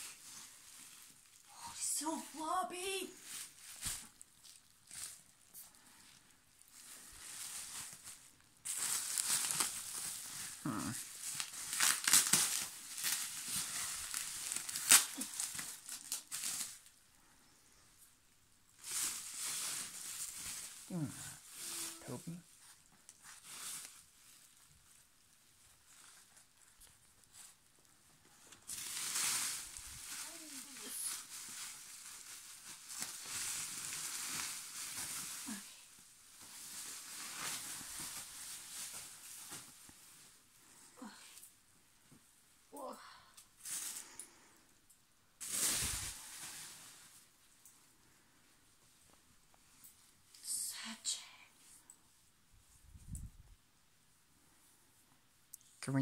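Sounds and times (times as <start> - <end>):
bubble wrap crinkling: 0.0 - 42.2, 42.8 - 51.0.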